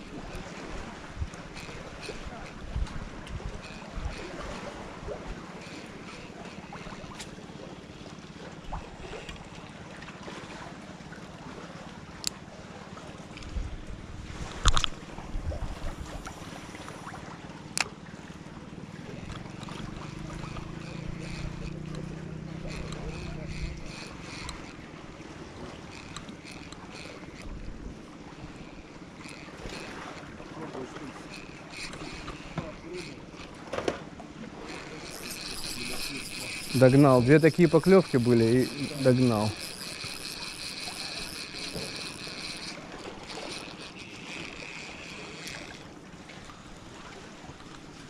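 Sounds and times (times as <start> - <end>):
wind on microphone: 13.4 - 16.3
faint short clicks: 14.6 - 15.0.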